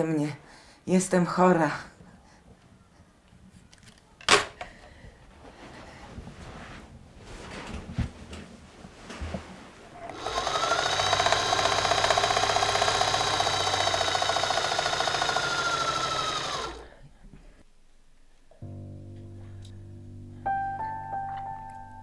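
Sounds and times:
soft rustling: 0:04.9 - 0:10.1
sewing machine stitching: 0:10.0 - 0:16.9.

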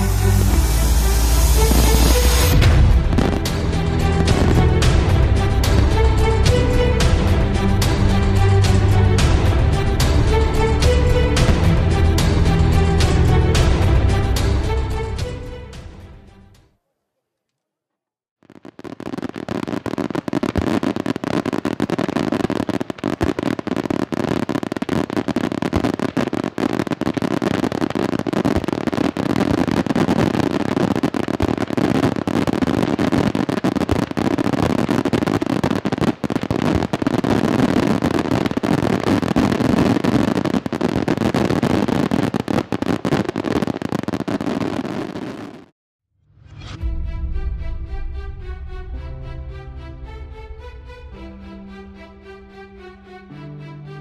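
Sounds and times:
firework bangs and crackle: 0:00.0 - 0:15.9, 0:18.4 - 0:45.7.

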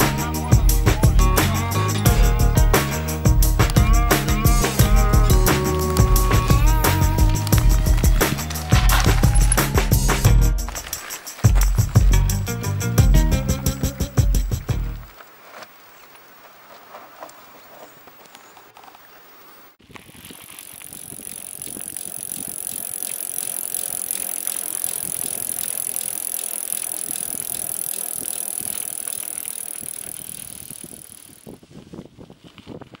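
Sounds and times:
high-pitched buzz from bike: 0:00.0 - 0:12.0, 0:19.9 - 0:31.6
bike tyres on gravel: 0:00.0 - 0:33.0.

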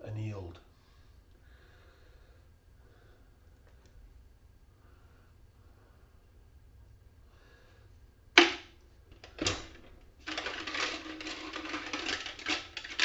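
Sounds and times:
wire clicking and rattling: 0:08.4 - 0:13.0.

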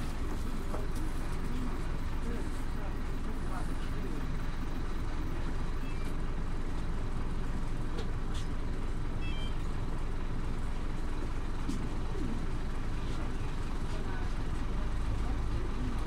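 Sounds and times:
bus engine and road rumble: 0:00.0 - 0:16.0
faint short high beeps: 0:09.2 - 0:09.6.

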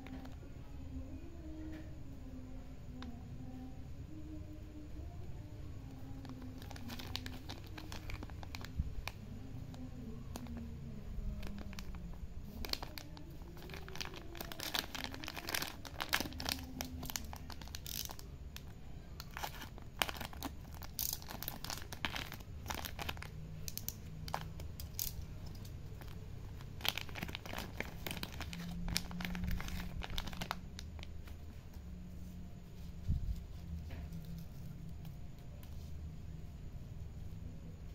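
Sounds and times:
plastic packet crinkling: 0:06.2 - 0:10.7, 0:11.3 - 0:31.4.

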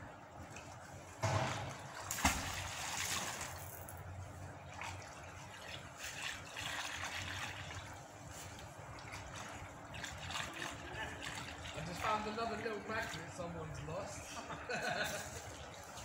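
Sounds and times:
river water trickling: 0:00.4 - 0:16.0
object splashing into water: 0:01.2 - 0:04.0.

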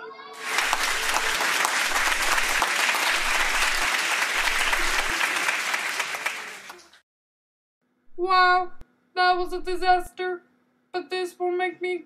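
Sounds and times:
audience applauding: 0:00.4 - 0:07.0.

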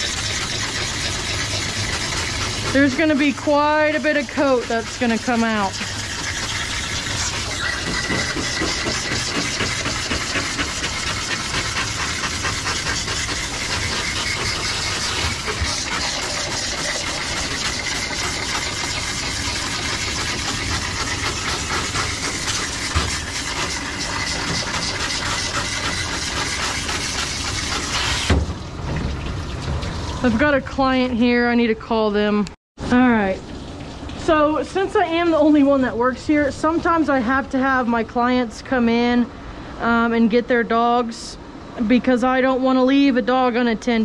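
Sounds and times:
hose water spraying: 0:00.0 - 0:30.8.

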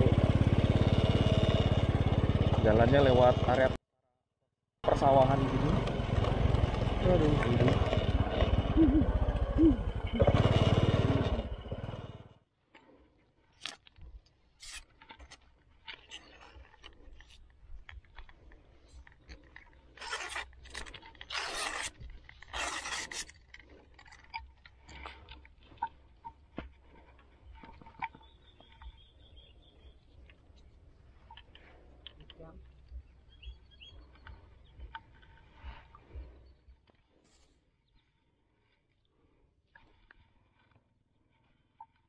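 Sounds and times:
motorbike engine: 0:00.0 - 0:03.8, 0:04.8 - 0:12.4
fishing tackle clicks and scrapes: 0:12.8 - 0:29.0.

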